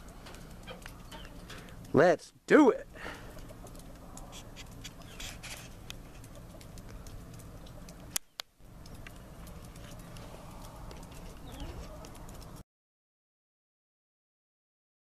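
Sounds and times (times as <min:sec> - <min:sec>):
faint outdoor background noise: 0:00.0 - 0:12.6
soft clicks and rustles: 0:03.3 - 0:12.6.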